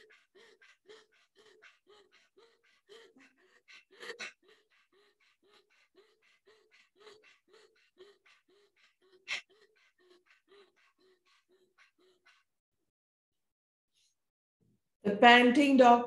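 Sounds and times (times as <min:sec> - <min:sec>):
rapid panting through open mouth: 0:00.0 - 0:12.6.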